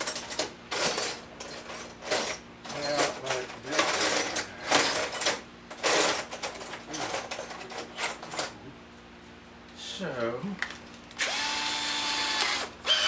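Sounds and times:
metal tools clicking and rattling: 0.0 - 8.6.

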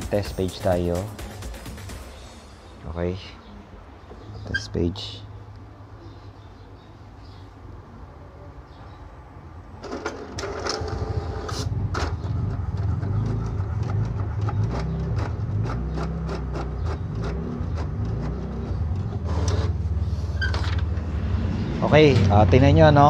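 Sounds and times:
printer rapid clicks: 9.8 - 12.1
inkjet printer motors humming: 9.8 - 20.7.

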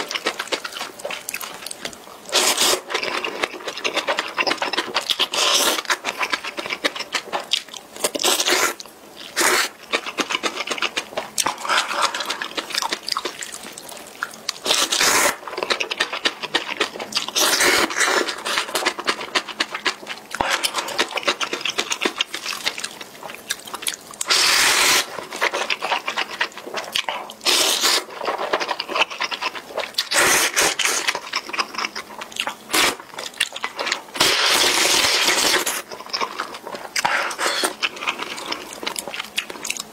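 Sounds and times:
slurping noodles: 9.4 - 9.8, 14.6 - 15.4, 17.4 - 18.8, 24.2 - 26.0, 27.4 - 28.4, 30.0 - 31.1, 34.2 - 35.9, 37.0 - 38.5.

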